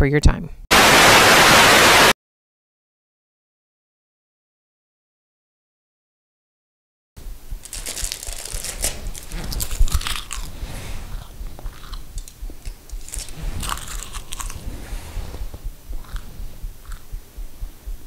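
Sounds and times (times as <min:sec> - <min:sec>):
low steady hum: 0:07.2 - 0:18.0
person chewing and crunching food: 0:07.6 - 0:17.1.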